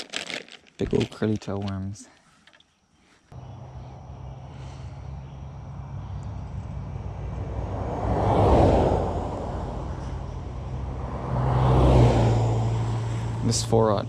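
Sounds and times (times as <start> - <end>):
vehicles driving past: 3.3 - 14.0.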